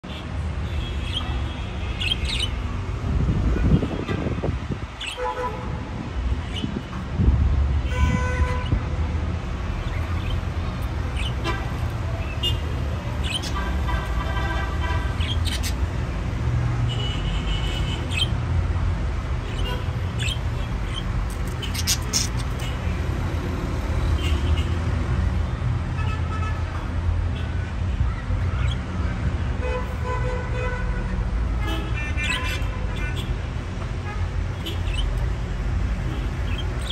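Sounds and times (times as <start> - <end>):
road traffic rumble: 0.0 - 36.9
vehicle horns tooting: 7.9 - 8.8.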